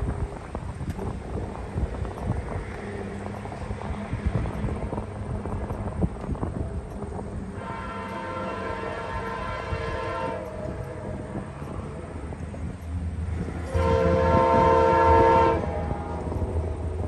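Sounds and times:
train rumble: 0.0 - 17.0
train air horn blasts: 7.5 - 11.8, 13.6 - 16.3.

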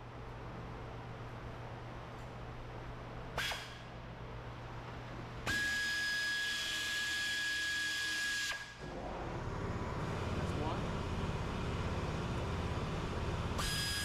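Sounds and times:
air ratchet whine: 5.4 - 8.9, 13.5 - 14.0.

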